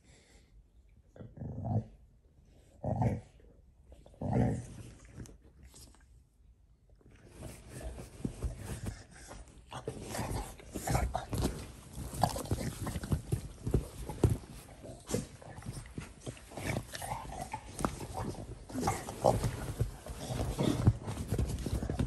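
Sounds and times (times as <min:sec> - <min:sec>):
dogs scuffling and thumping: 0:07.3 - 0:22.0.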